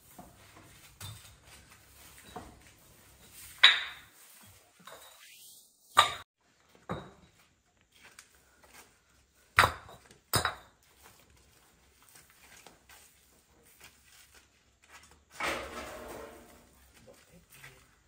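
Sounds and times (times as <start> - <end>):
scraping rustle: 15.2 - 17.7.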